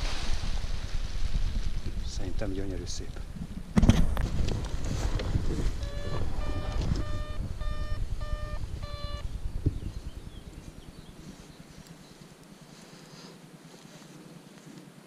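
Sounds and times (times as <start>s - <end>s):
low rumble: 0.0s - 12.3s
electronic beeper beeping: 5.8s - 9.4s.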